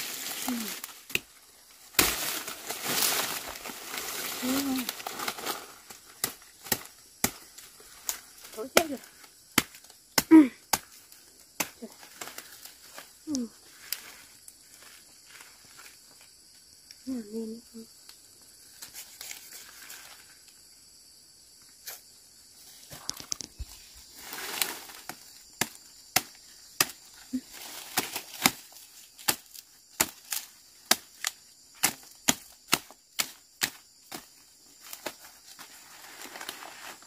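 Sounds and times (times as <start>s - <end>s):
leaves rustling: 0.0s - 16.8s, 18.5s - 20.8s, 21.8s - 37.0s
machete chopping bamboo: 0.8s - 3.3s, 6.2s - 12.4s, 25.1s - 27.0s, 27.9s - 34.3s.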